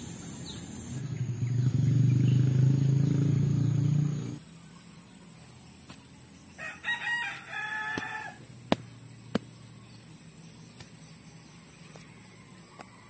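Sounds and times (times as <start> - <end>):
rooster crowing: 6.6 - 8.4.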